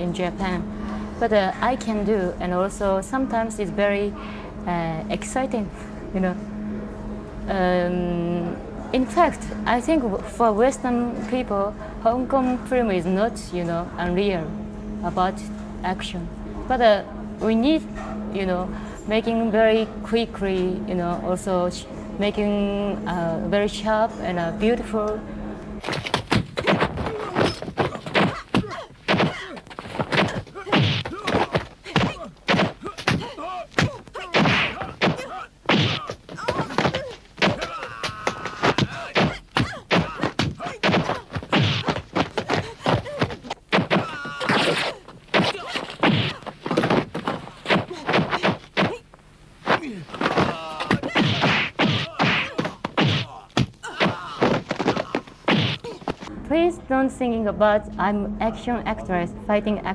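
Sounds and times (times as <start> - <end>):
punch and kick impacts: 25.9 - 49.0, 49.6 - 56.2
fighters shouting and grunting: 26.7 - 49.0, 49.7 - 56.3
short pained cry: 30.2 - 47.0.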